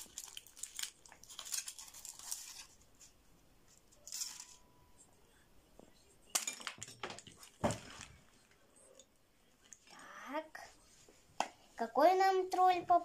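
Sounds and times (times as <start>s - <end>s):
foil wrapper crinkling: 0.0s - 3.1s.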